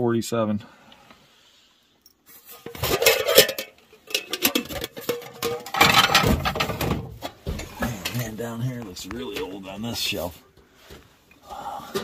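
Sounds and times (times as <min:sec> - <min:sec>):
objects clattering on a shelf: 0:02.5 - 0:08.3.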